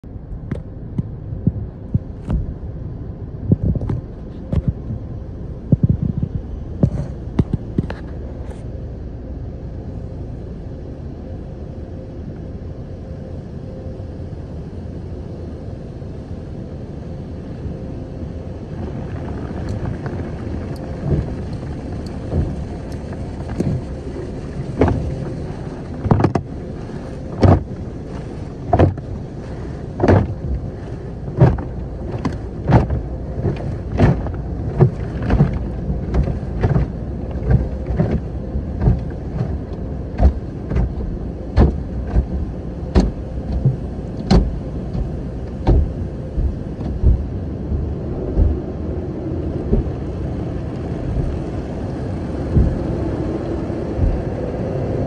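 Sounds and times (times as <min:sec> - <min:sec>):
car wash machinery rumble: 0:00.0 - 0:55.0
brushes scrubbing windshield: 0:22.2 - 0:48.7
brush strips slapping car body: 0:27.3 - 0:48.7.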